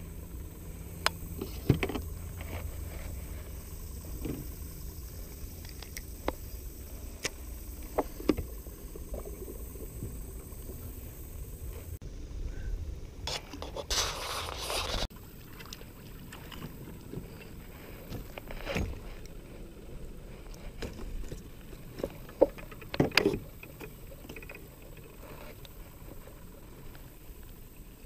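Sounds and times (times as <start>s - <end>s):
hand brushing against camera: 13.3s - 15.1s.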